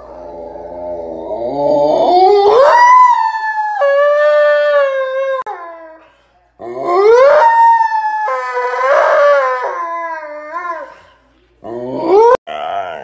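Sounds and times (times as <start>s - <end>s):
husky howling: 0.0s - 6.0s, 6.6s - 11.0s.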